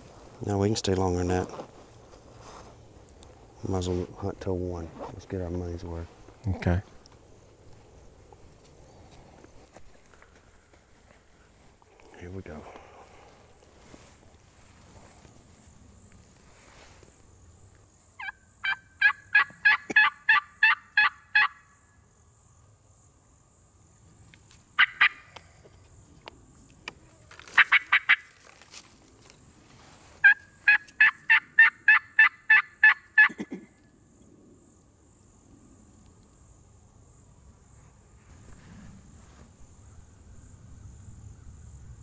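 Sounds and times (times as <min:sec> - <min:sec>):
turkey call yelps: 0:18.2 - 0:21.7, 0:24.8 - 0:25.3, 0:27.5 - 0:28.3, 0:30.2 - 0:33.5.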